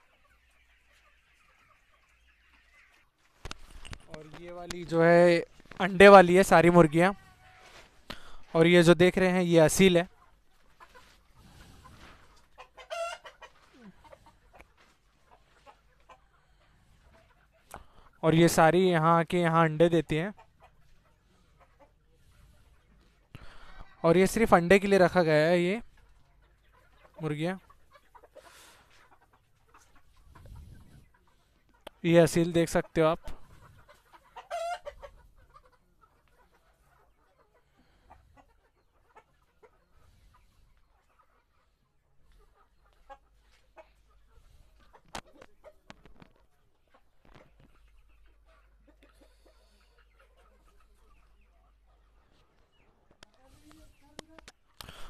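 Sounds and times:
chickens clucking: 0:00.0 - 0:55.0
chicken call: 0:12.7 - 0:14.3, 0:34.2 - 0:35.1.

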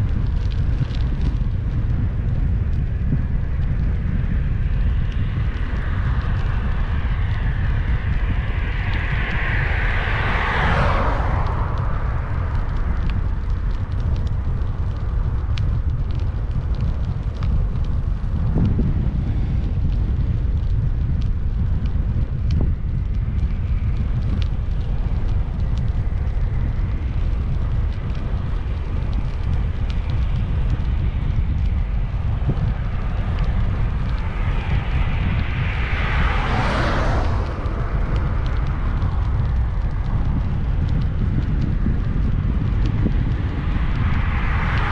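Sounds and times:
wind rumbling over microphone: 0:00.0 - 0:44.9
vehicle passing: 0:07.2 - 0:13.4, 0:32.5 - 0:40.0.

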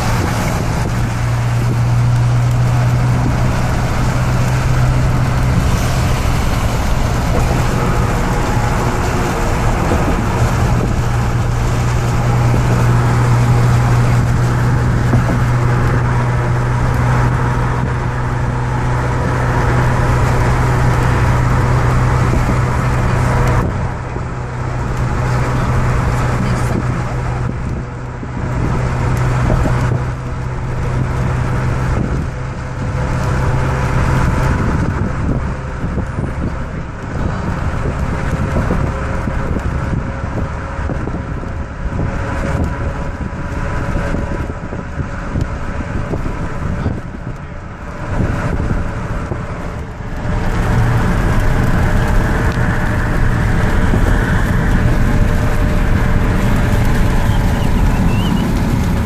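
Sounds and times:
rush of passing air and traffic: 0:00.0 - 0:59.0
tyres and engine drone: 0:00.0 - 0:59.0.

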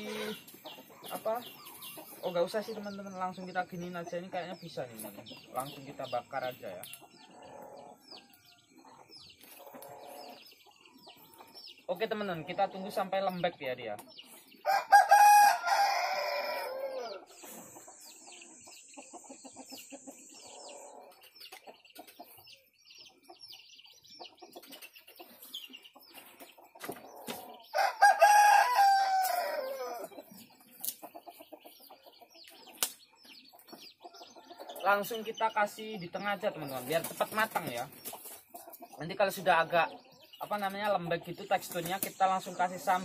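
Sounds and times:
rooster crowing: 0:14.6 - 0:17.3, 0:27.7 - 0:30.1.

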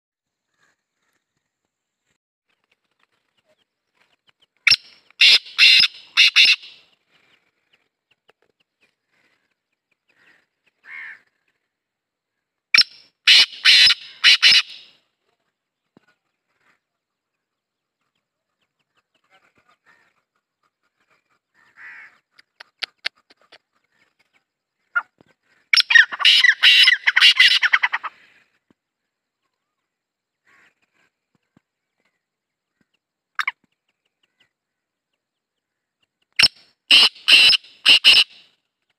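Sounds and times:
francolin calling: 0:04.7 - 0:06.9, 0:12.8 - 0:15.0, 0:25.7 - 0:28.2, 0:36.4 - 0:38.5.

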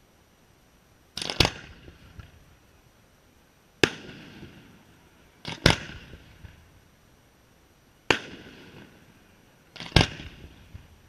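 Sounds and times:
loud firework bangs: 0:01.2 - 0:02.4, 0:03.8 - 0:06.7, 0:08.0 - 0:09.1, 0:09.7 - 0:10.9
firework crackling pops: 0:01.2 - 0:02.5, 0:03.8 - 0:06.7, 0:08.0 - 0:11.0.

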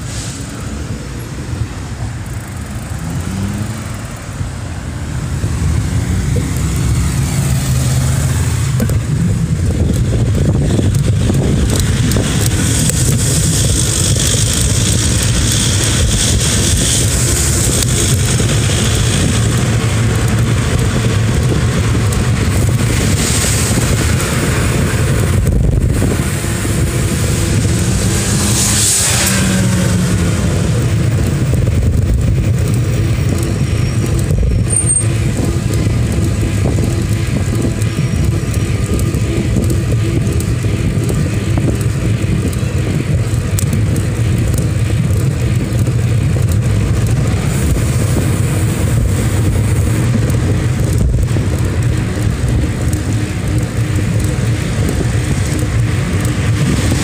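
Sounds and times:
vehicle passing: 0:00.0 - 0:09.4, 0:22.7 - 0:31.8
low engine hum: 0:00.0 - 0:57.0
wind rushing on microphone: 0:00.0 - 0:57.0.

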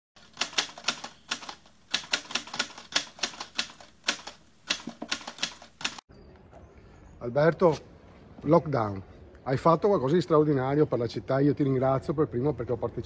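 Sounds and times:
typewriter keys clacking: 0:00.2 - 0:06.0.

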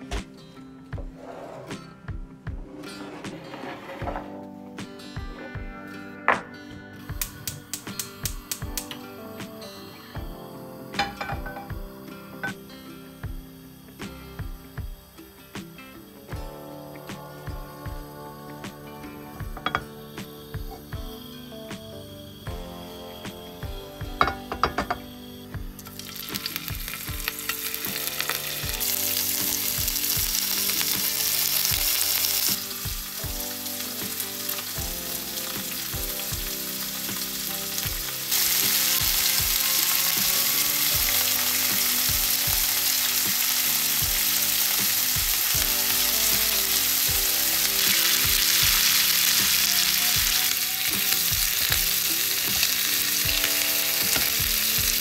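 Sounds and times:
shrimp sizzling in oil: 0:11.0 - 0:16.2, 0:17.1 - 0:21.3, 0:22.3 - 0:55.0.

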